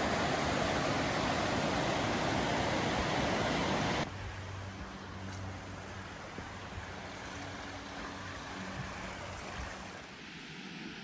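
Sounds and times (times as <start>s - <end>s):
creek water flowing: 0.0s - 11.0s.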